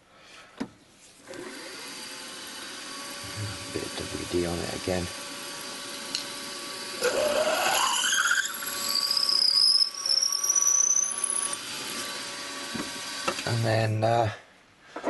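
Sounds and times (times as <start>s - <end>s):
milling machine hum: 1.3s - 13.4s
drill bit squealing in metal: 7.0s - 11.6s.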